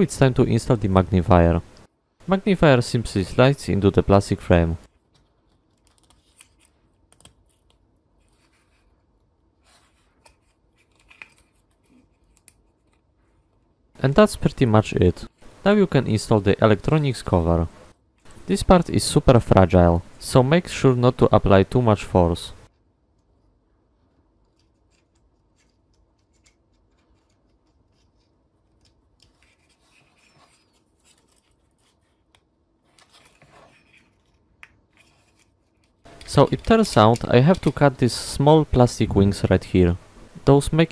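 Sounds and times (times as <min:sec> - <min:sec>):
plastic parts clicking and scraping: 0:24.4 - 0:38.0.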